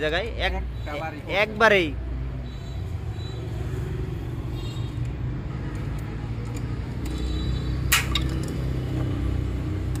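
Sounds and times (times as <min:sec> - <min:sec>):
road traffic engine rumble: 0:00.0 - 0:10.0.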